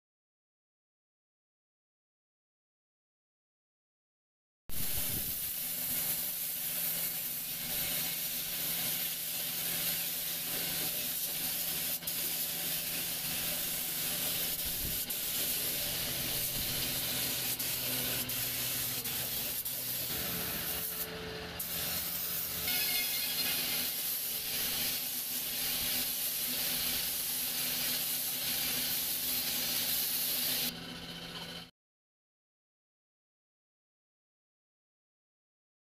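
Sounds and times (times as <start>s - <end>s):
spray gun hissing: 4.7s - 30.7s.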